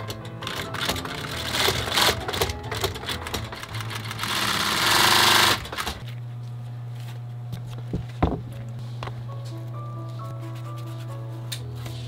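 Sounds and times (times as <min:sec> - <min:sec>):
sewing machine clattering: 0:00.0 - 0:06.0
steady low hum: 0:03.5 - 0:12.0.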